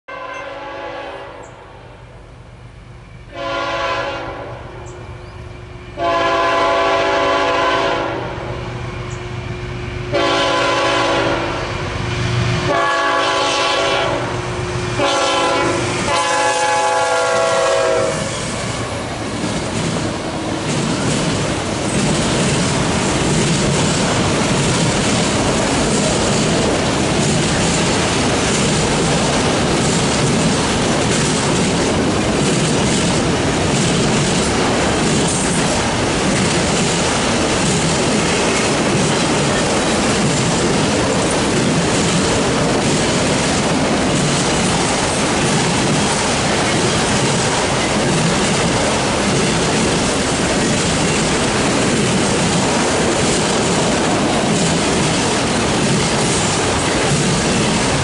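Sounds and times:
locomotive air horn blasts: 0:00.1 - 0:01.5, 0:03.3 - 0:04.6, 0:06.0 - 0:08.4, 0:10.1 - 0:11.8, 0:12.6 - 0:18.9
train cars rumbling and clacking: 0:00.1 - 0:58.0.

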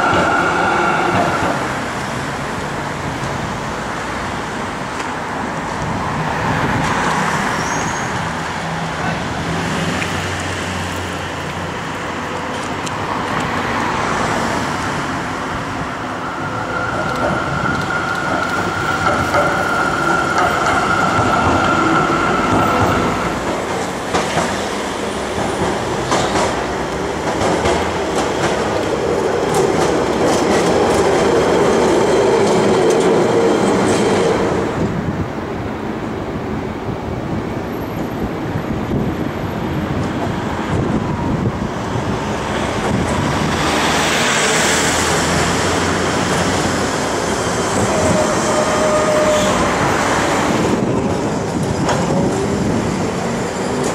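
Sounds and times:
tram wheels rattling on rails: 0:00.0 - 0:35.4, 0:37.1 - 0:53.9
road traffic: 0:00.0 - 0:53.9
high squeal of tram: 0:07.3 - 0:08.4, 0:16.2 - 0:23.5, 0:43.5 - 0:50.5.

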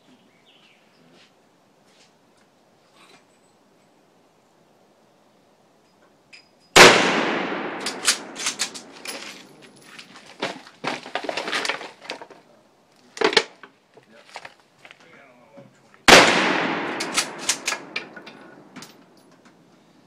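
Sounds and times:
loud gunshot: 0:06.8 - 0:08.4, 0:16.1 - 0:18.0.

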